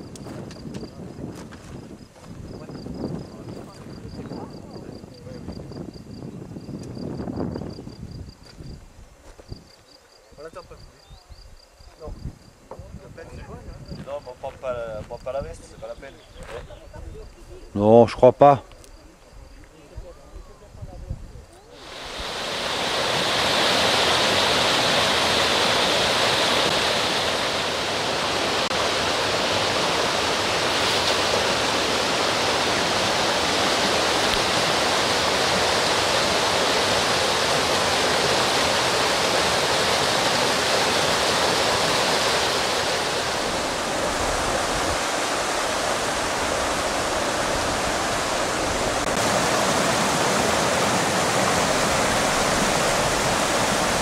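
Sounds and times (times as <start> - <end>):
stream rushing over boulders: 21.8 - 54.0.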